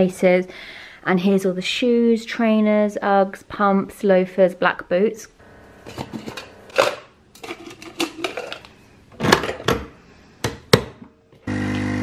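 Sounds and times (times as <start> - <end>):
espresso machine pump humming: 11.4 - 12.0.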